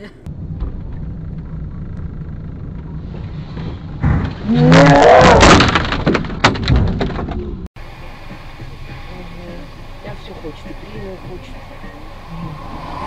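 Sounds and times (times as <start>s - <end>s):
engine and road noise: 0.0s - 13.0s
road rumble: 0.0s - 13.0s
car crash: 0.3s - 7.7s
debris knocking on car: 4.0s - 7.5s.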